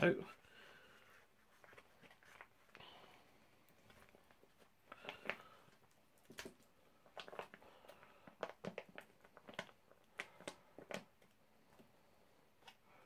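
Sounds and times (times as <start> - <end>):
plastic pouch crinkling: 3.6 - 11.4.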